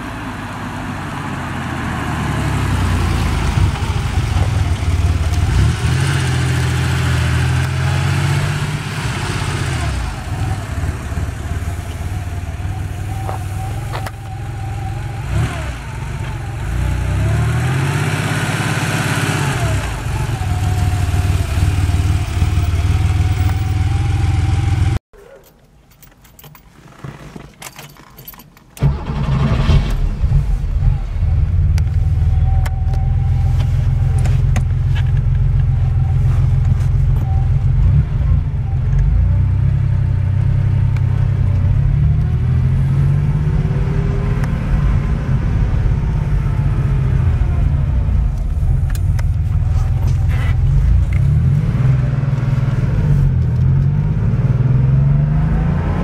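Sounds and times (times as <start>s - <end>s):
car engine heard from inside cabin: 30.5s - 56.0s.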